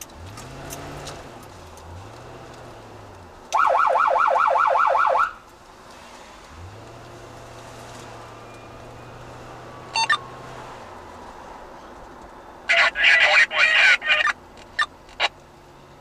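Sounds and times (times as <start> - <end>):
emergency siren yelping: 3.6 - 5.4
short high beeps: 10.0 - 10.2.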